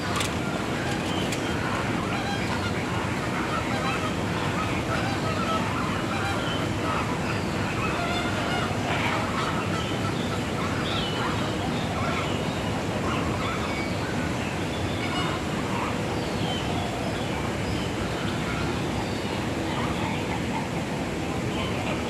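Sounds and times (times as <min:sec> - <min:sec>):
flamingos honking: 0:00.0 - 0:10.0
steady background noise: 0:00.0 - 0:22.0.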